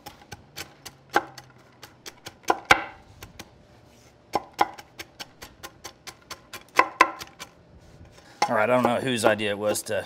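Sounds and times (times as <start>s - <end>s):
scraper chopping nuts on wood: 0.0s - 3.5s, 4.3s - 7.5s.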